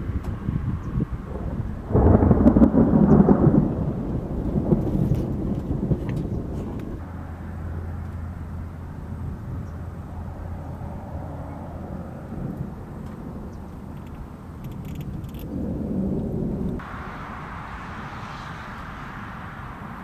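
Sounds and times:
thunder clap rolling: 0:00.0 - 0:07.1, 0:10.1 - 0:20.0
steady low hum: 0:06.4 - 0:20.0.

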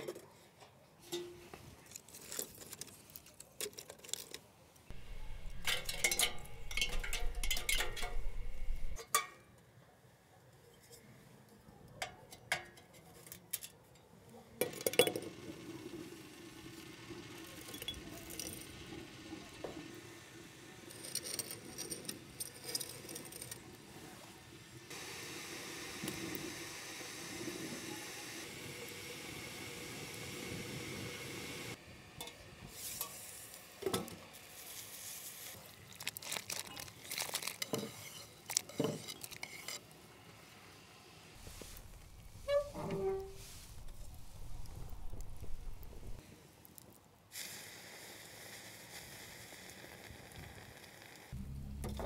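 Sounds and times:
fire humming and hissing: 0:04.8 - 0:09.0, 0:15.3 - 0:52.0
metal and glass clinks: 0:05.0 - 0:09.1
pine cones clattering into metal: 0:05.0 - 0:09.3, 0:35.9 - 0:39.8.

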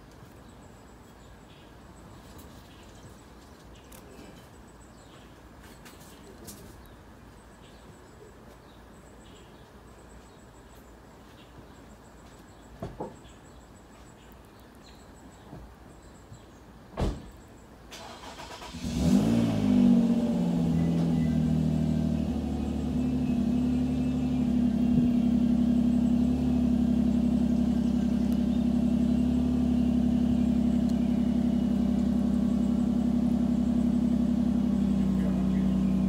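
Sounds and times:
vehicle engine starting and idling: 0:17.9 - 0:36.0.

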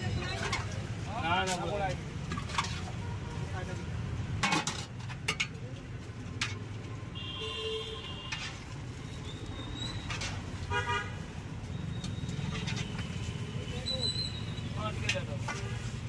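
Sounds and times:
road traffic: 0:00.0 - 0:16.0
vehicle horn toots: 0:10.7 - 0:11.2.

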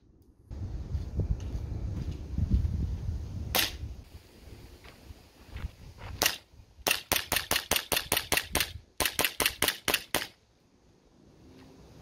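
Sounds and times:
airsoft pistol rapid shots: 0:06.2 - 0:10.4.

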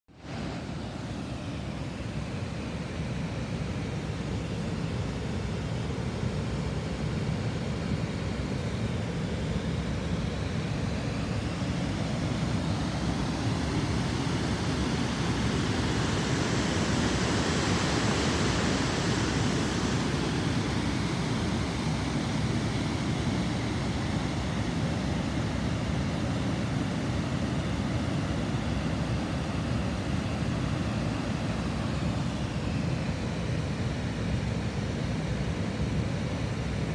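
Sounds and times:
water rushing over a weir: 0:11.8 - 0:32.3.

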